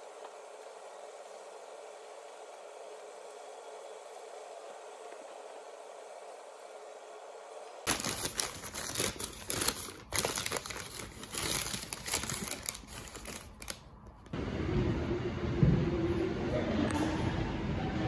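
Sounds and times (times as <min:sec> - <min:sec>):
paper bag crinkling and rustling: 0:07.9 - 0:14.3.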